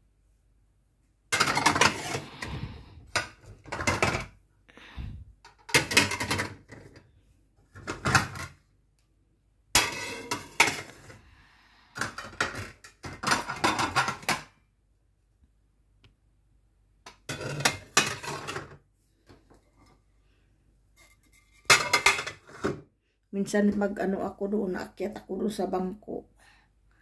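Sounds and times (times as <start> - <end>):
dinner plates clattering: 1.3 - 4.3, 5.5 - 7.0, 9.8 - 11.2, 12.0 - 14.5, 17.1 - 18.8, 21.5 - 22.8.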